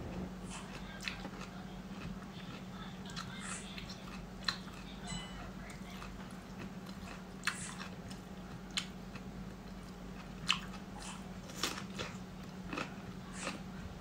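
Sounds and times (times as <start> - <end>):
low hum: 0.0 - 8.5
cucumber crunching: 5.7 - 13.7.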